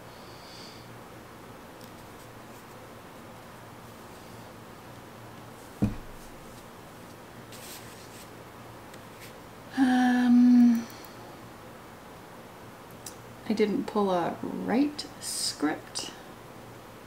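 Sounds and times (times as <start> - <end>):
thump on desk: 5.8 - 6.3
woman humming: 9.7 - 11.0.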